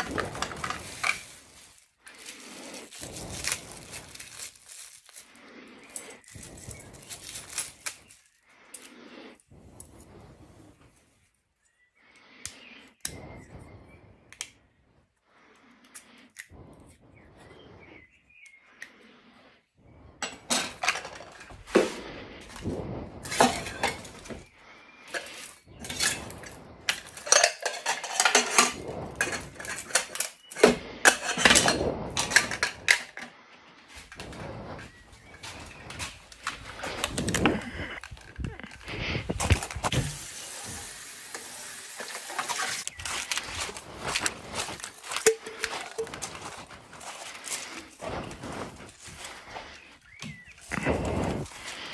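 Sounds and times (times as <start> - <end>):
metal cookware clinking and clattering: 20.2 - 21.5, 23.2 - 24.3, 25.2 - 33.3.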